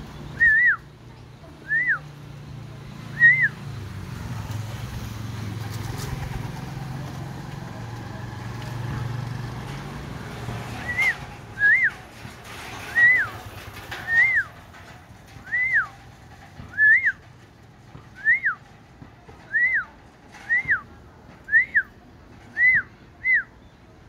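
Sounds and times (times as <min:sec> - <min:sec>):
short loud whistles: 0:00.4 - 0:00.8, 0:16.7 - 0:17.2, 0:22.5 - 0:23.6.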